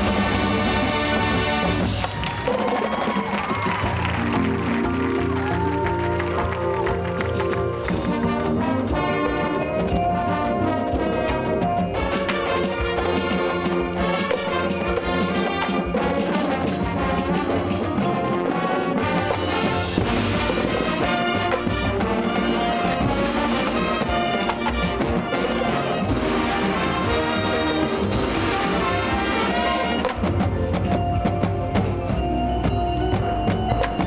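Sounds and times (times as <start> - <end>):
marching band playing: 0.0 - 34.0
brass sustained chords: 7.9 - 30.3.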